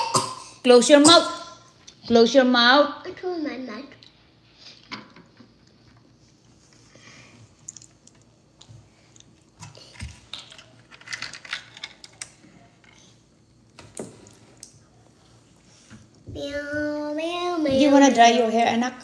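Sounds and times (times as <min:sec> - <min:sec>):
plastic toy pieces clicking: 0:10.3 - 0:12.4.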